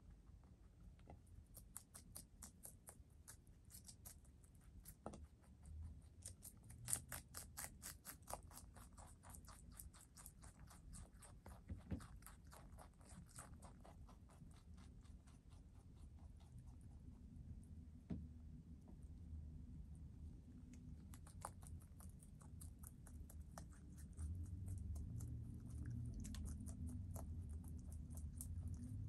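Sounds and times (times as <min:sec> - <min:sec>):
rabbit chewing crisp lettuce: 0:00.0 - 0:29.0.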